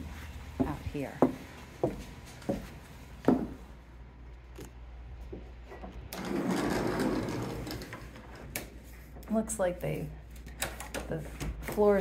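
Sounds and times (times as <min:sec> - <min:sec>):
sliding glass door rumbling: 0:06.1 - 0:08.6.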